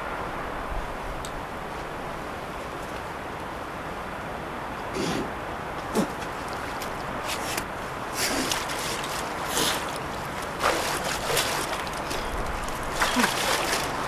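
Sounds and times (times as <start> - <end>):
soil scraping and rustling: 6.5 - 14.0.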